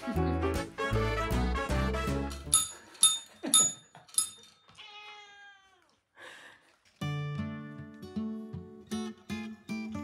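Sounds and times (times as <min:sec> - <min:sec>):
desk bell ding: 0:02.5 - 0:04.5.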